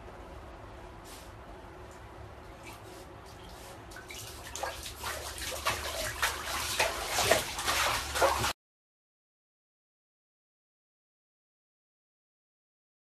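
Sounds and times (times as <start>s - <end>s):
bath water splashing: 2.6s - 8.6s.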